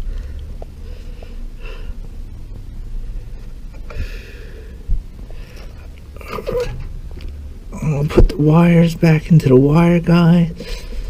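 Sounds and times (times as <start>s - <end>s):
hands rustling wires and parts: 4.9s - 9.2s.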